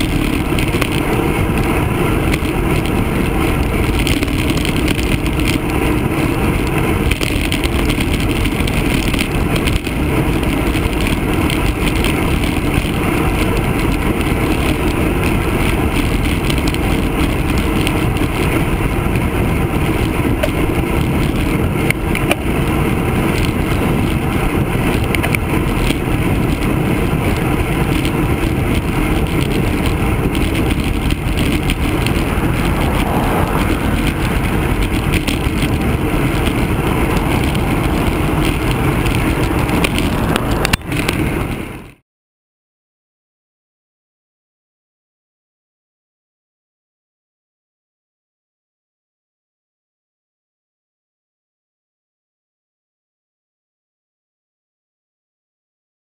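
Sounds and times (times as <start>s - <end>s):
bicycle tyre and road noise: 0.0s - 42.0s
wind rush: 0.0s - 42.0s.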